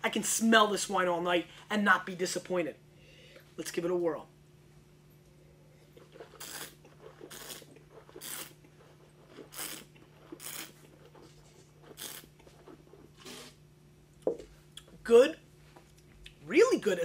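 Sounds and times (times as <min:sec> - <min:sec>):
person slurping wine: 0:05.7 - 0:13.6.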